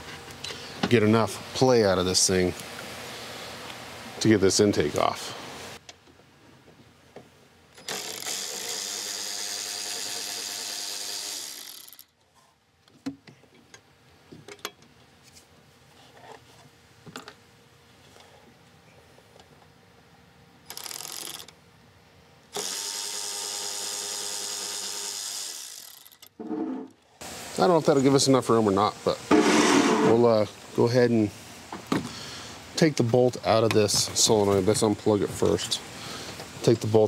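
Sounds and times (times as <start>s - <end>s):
cordless power tool running: 7.8s - 12.0s, 22.6s - 26.2s.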